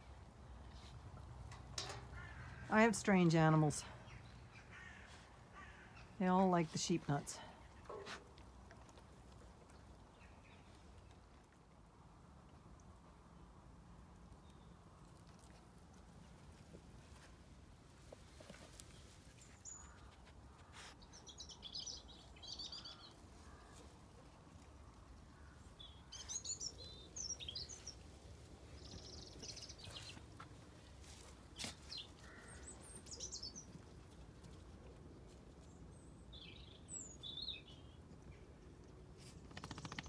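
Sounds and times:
small birds chirping: 18.2s - 23.9s, 24.6s - 34.0s, 35.6s - 38.4s, 39.2s - 40.0s.

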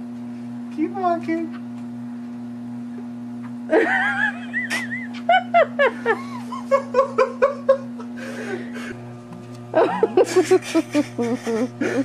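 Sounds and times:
treadmill low hum: 2.2s - 12.0s
person giggling: 3.7s - 9.0s, 9.7s - 12.0s.

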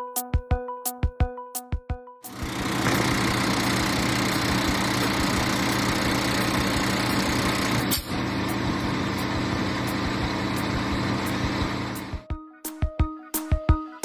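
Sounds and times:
diesel engine idling: 2.3s - 12.2s.

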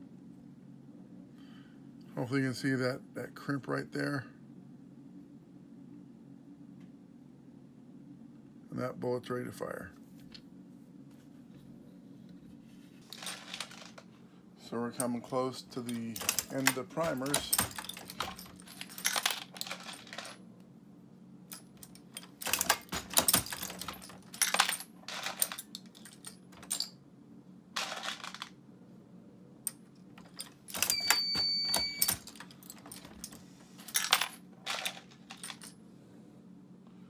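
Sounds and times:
brass cartridges clinking: 14.9s - 20.4s, 21.5s - 26.9s, 30.2s - 35.7s
reloading press metallic clicks: 15.8s - 20.4s, 21.5s - 26.9s, 29.7s - 33.4s.

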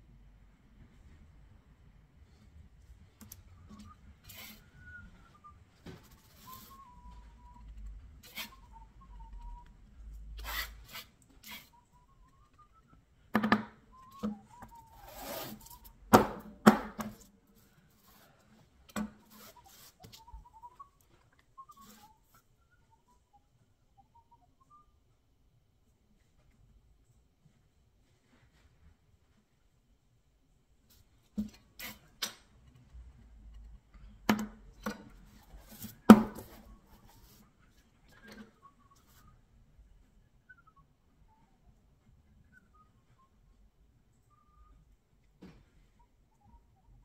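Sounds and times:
faint wavering whistle: 3.5s - 13.1s, 13.9s - 16.0s, 19.3s - 25.2s, 36.6s - 45.0s
taps and clicks of art tools: 13.3s - 14.8s, 33.5s - 35.2s
putty knife scraping: 14.2s - 15.8s.

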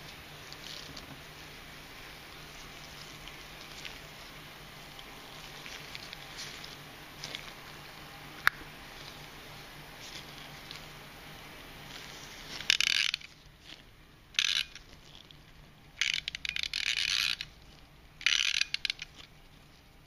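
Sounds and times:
clock winding ratchet clicking: 12.7s - 13.3s, 14.4s - 14.8s, 16.0s - 17.5s, 18.2s - 19.2s.

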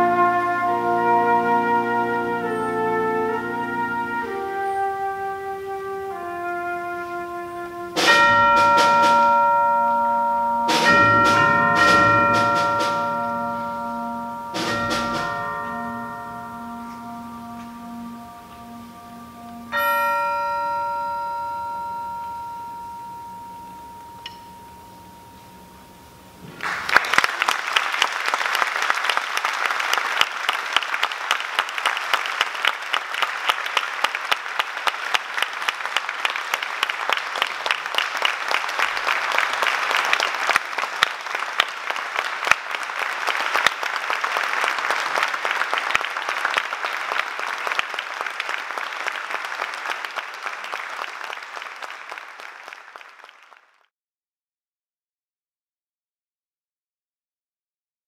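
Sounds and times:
audience applause: 26.4s - 53.9s.

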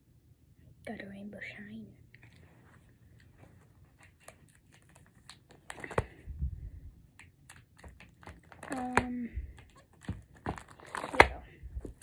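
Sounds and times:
soft rustling: 2.1s - 7.0s.

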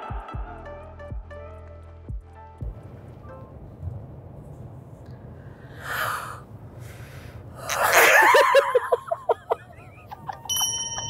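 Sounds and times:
person exhaling: 5.3s - 8.0s
breathy vocal outburst: 5.6s - 8.0s.

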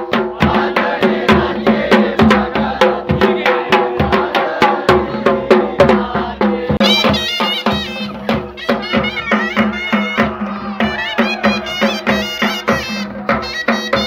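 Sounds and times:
drums beaten in fast rhythm: 0.0s - 14.0s
reedy wind instrument melody: 6.8s - 14.0s.

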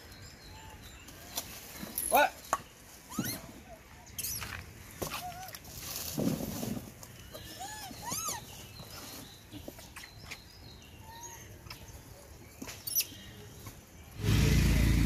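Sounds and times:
monkeys squeaky calls: 3.0s - 3.6s, 7.5s - 8.6s.

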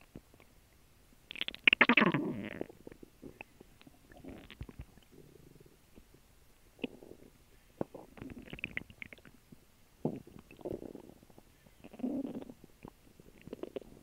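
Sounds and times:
stomach gurgling and rumbling: 1.3s - 14.0s.

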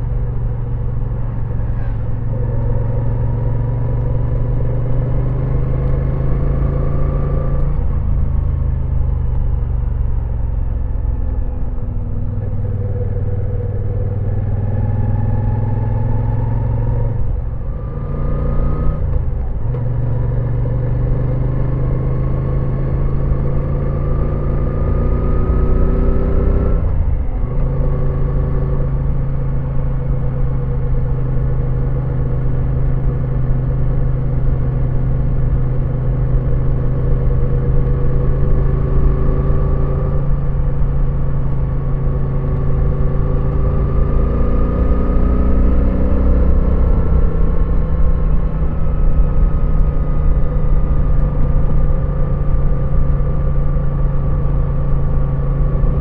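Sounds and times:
motorcycle engine revving: 20.0s - 56.0s.

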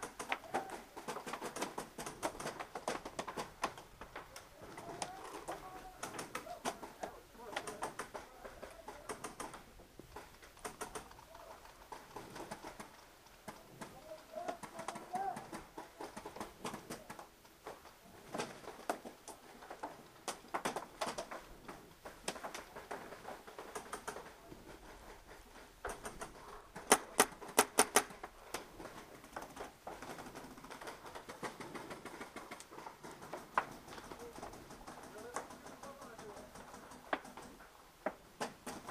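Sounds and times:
paintball markers popping: 0.0s - 17.3s, 25.8s - 28.7s
loud cracks: 25.8s - 37.6s.

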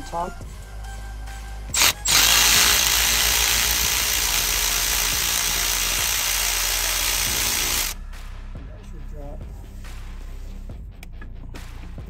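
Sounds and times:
power tool running: 1.7s - 8.0s.

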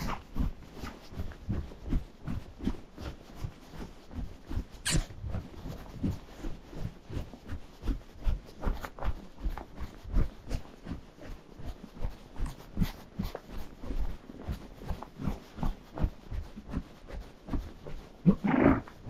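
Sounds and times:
horse hooves on snow: 0.0s - 19.0s
short sharp sound: 4.8s - 5.1s.

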